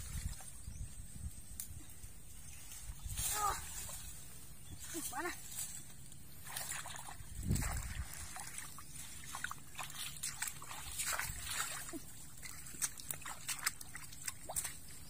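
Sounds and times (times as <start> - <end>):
sloshing through muddy water: 6.3 - 15.0
small sharp splashes: 6.4 - 15.0.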